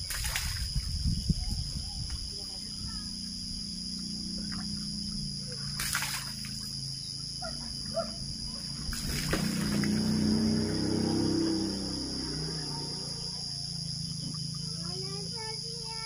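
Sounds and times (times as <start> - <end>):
water splashing onto concrete: 0.0 - 0.8, 5.7 - 6.8, 8.9 - 10.8
insects chirring: 0.0 - 16.0
low hum: 0.8 - 14.7.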